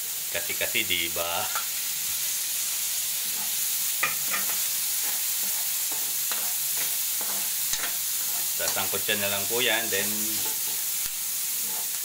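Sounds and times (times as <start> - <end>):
food sizzling in hot oil: 0.0 - 12.0
metal ladle scraping a wok: 3.2 - 8.6, 11.6 - 12.0.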